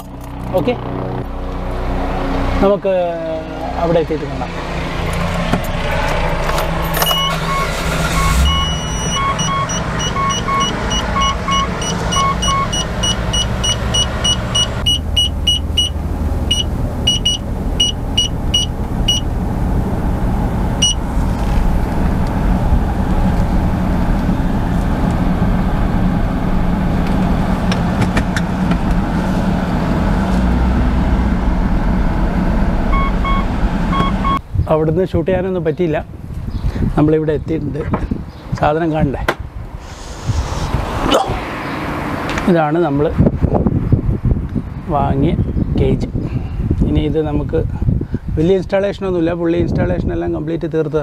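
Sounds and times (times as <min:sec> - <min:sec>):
car engine running: 0:03.3 - 0:34.4
short electronic beeps: 0:07.1 - 0:19.2, 0:20.8 - 0:21.0, 0:32.9 - 0:34.4.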